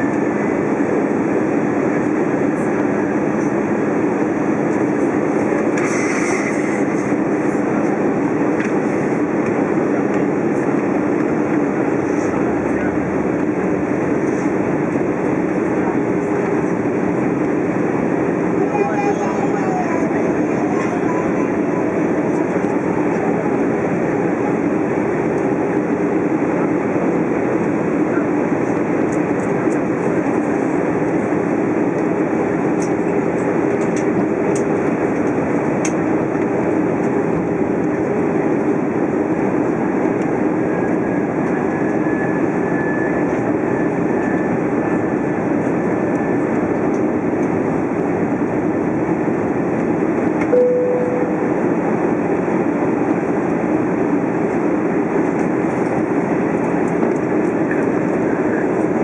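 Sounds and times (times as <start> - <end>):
jet engine hum: 0.0 - 59.0
short low tone: 50.5 - 51.8.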